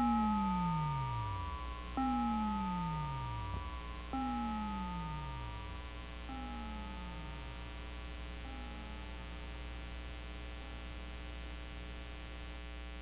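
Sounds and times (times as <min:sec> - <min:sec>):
faint falling tones: 0:00.0 - 0:09.6
low electronic hum: 0:00.0 - 0:13.0.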